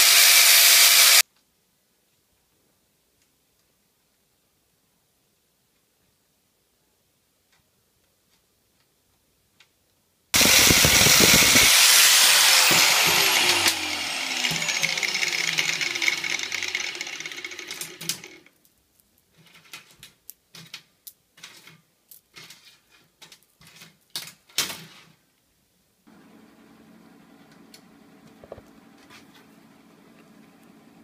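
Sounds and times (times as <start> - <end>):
rotary tool grinding steel: 0.0 - 1.2, 10.4 - 18.5.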